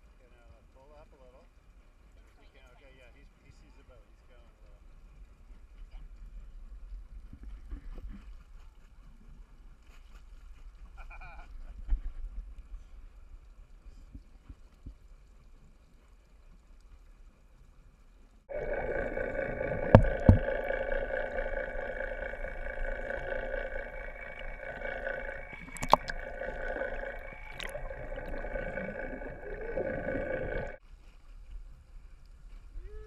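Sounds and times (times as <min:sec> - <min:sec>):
underwater boat engine hum: 0:18.5 - 0:30.8.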